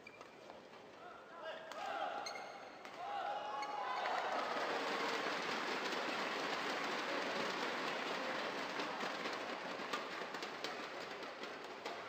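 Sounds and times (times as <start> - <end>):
crowd applauding: 3.8 - 9.8.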